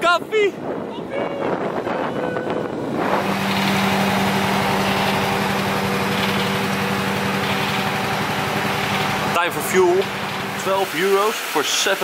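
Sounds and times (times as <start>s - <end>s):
fuel pump humming: 2.8s - 12.0s
fuel flow hiss: 2.9s - 12.0s.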